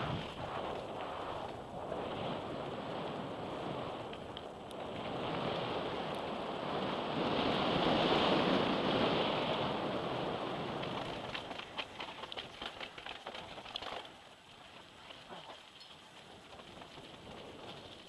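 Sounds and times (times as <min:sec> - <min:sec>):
wind noise on microphone: 0:00.0 - 0:14.1, 0:15.3 - 0:18.0
bike tyres on dirt: 0:00.0 - 0:18.0
bike rattles and knocks: 0:10.7 - 0:18.0.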